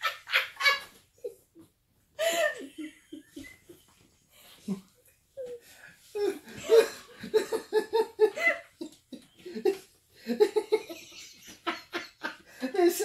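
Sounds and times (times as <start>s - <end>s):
people laughing: 6.5s - 13.0s.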